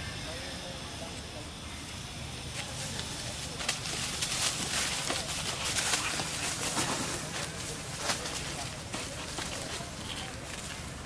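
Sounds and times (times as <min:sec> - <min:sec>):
dry leaves rustling and crunching: 0:02.6 - 0:11.0.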